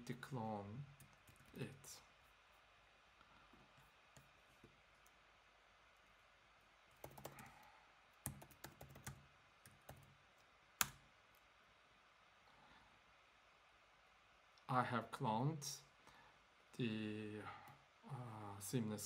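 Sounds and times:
typing on keyboard: 7.0 - 7.5, 8.2 - 10.1.

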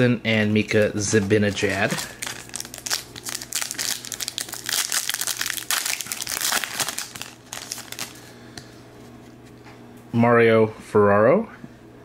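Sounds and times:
foil wrapper tearing and crinkling: 1.0 - 8.2.

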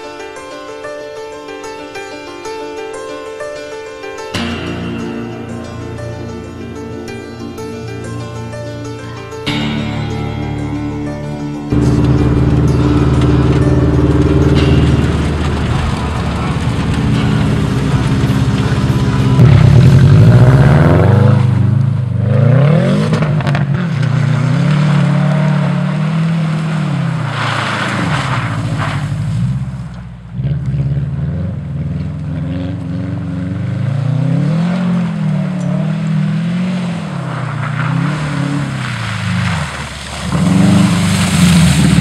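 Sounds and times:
car engine revving: 4.4 - 42.0
wheels spinning in snow: 11.7 - 21.7, 31.8 - 42.0.

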